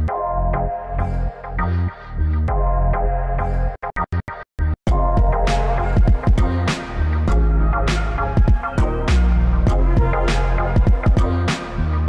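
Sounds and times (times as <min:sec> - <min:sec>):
electronic music with bass: 0:00.0 - 0:12.0.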